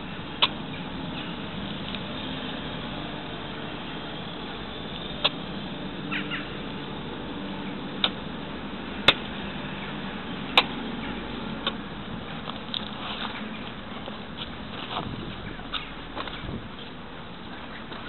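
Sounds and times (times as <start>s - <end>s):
outdoor background noise: 0.0s - 18.0s
sharp clicks: 8.0s - 8.2s.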